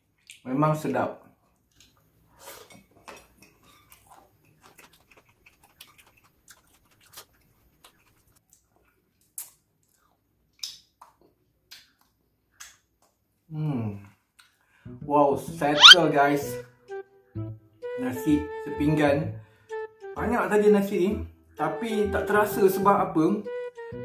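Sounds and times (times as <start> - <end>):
crisp chewing crunches: 2.6 - 11.1
mouth smacks: 15.8 - 16.0.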